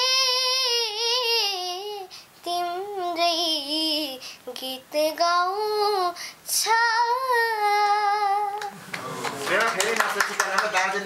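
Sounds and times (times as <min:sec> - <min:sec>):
girl singing unaccompanied: 0:00.0 - 0:08.7.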